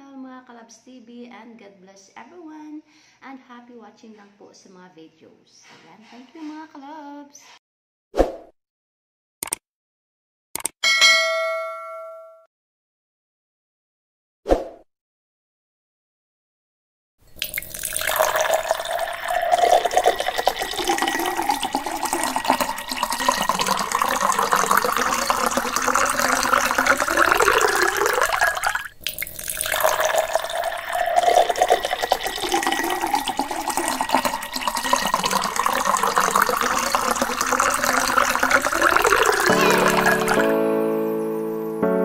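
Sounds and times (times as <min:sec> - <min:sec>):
tap water running into metal basin: 0:17.3 - 0:40.5.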